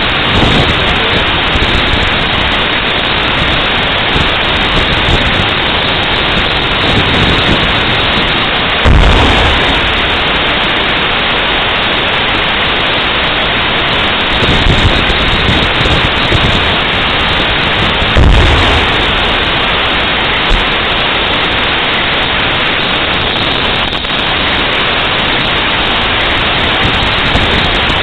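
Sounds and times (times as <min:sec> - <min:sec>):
loud rushing noise: 0:00.0 - 0:28.0
tank cannon booms: 0:08.8 - 0:11.7, 0:17.8 - 0:21.2.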